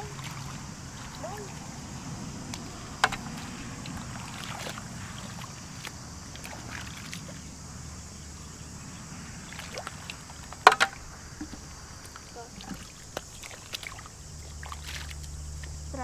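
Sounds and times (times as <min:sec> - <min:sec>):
splashing in muddy water: 0:00.0 - 0:16.0.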